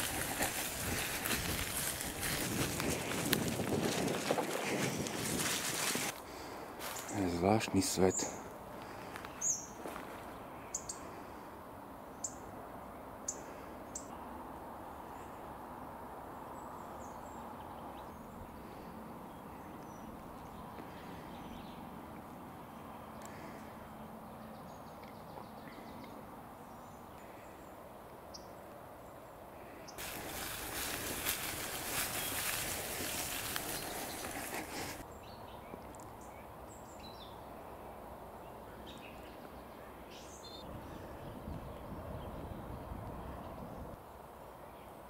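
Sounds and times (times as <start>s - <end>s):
small birds chirping: 6.3s - 11.2s, 16.7s - 37.5s.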